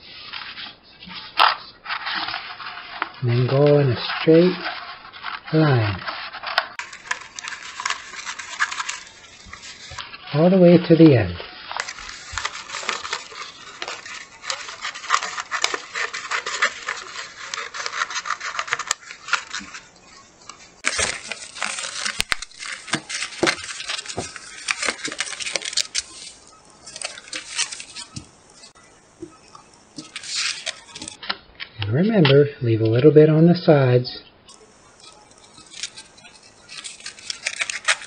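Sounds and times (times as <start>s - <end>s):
scissors cutting plastic film: 4.6s - 10.2s, 11.8s - 31.3s, 34.5s - 38.0s.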